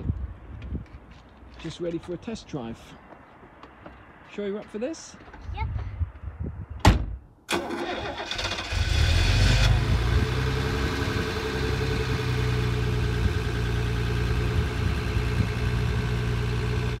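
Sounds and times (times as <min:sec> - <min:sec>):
car engine starting and idling: 0:07.5 - 0:17.0.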